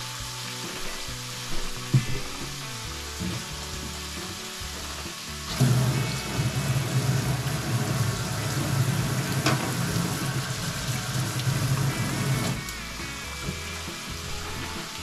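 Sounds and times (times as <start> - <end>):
frying pan sizzling: 0.0 - 15.0
tap running into steel sink: 5.5 - 12.6.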